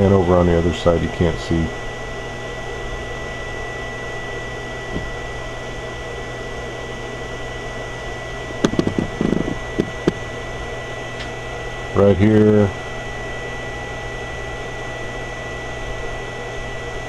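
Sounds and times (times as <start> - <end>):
fan and electrical hum: 0.0 - 17.0
thin high whine: 0.0 - 17.0
camera handling knocks: 8.6 - 10.2.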